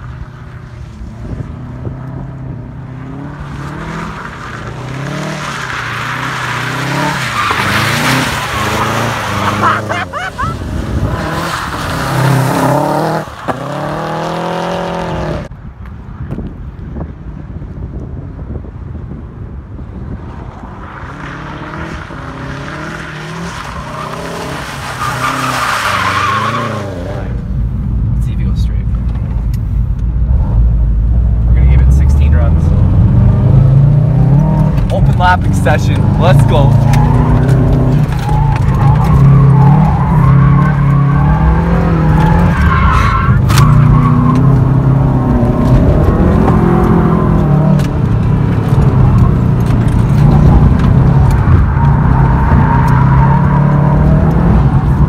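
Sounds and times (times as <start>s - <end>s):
car engine revving: 1.0s - 15.5s, 29.1s - 55.0s
tyres squealing on pavement: 3.5s - 13.8s, 21.3s - 27.4s, 34.3s - 45.3s
tyre squeal: 22.3s - 27.2s.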